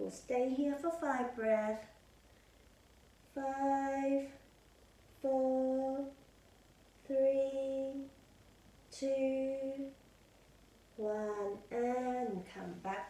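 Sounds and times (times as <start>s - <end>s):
woman chanting steady notes: 0.0s - 2.0s, 3.2s - 4.5s, 5.1s - 6.3s, 7.0s - 8.2s, 8.9s - 10.0s, 10.9s - 13.0s.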